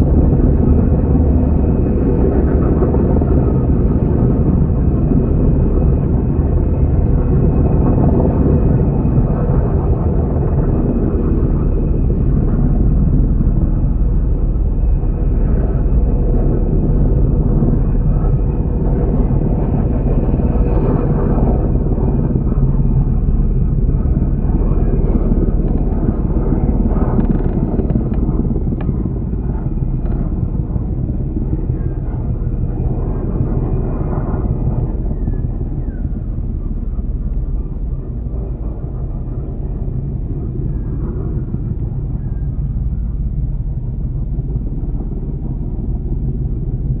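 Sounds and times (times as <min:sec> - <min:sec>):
helicopter rotors rumbling: 0:00.0 - 0:47.0.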